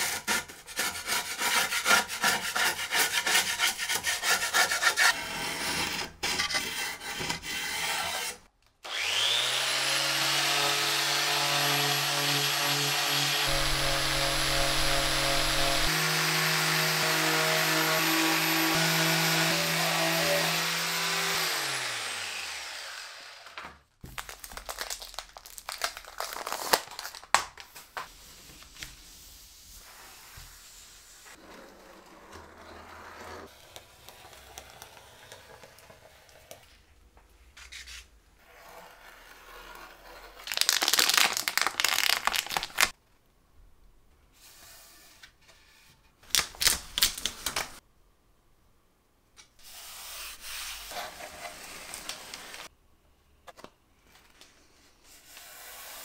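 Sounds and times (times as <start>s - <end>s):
electric sander spinning down: 13.5s - 23.6s.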